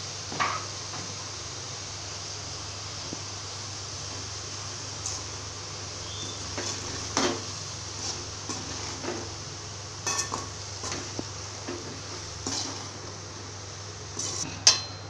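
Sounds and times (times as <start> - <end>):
metal spatula scraping a pan: 12.4 - 12.9, 14.2 - 14.5.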